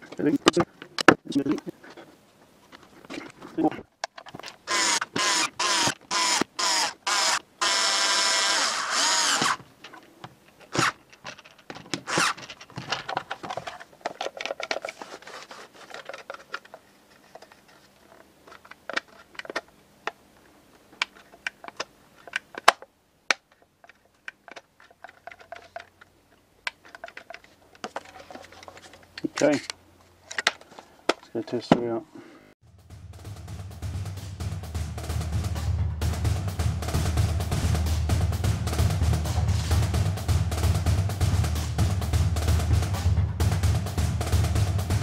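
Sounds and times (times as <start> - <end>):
plastic parts clicking and knocking: 0.0 - 1.7, 2.7 - 7.8, 8.6 - 32.0
cordless screwdriver bursts: 4.7 - 9.6.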